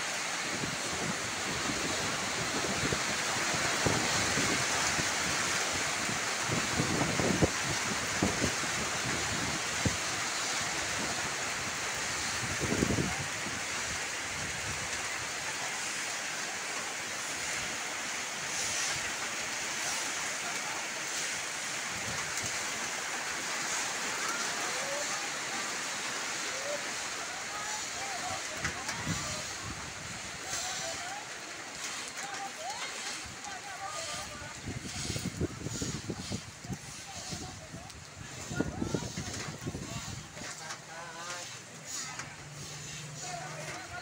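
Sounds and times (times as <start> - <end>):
rain on concrete: 0.0 - 44.0
wind buffeting microphone: 0.6 - 10.0, 12.1 - 13.7, 34.2 - 40.4.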